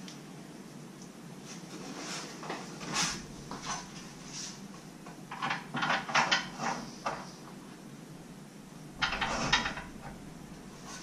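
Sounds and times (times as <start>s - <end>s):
metal brackets scraping and clacking: 9.0s - 10.2s.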